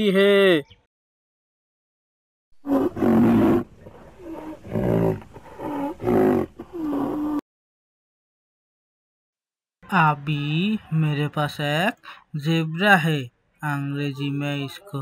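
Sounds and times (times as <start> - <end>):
rhinoceros bellowing calls: 2.6 - 7.4.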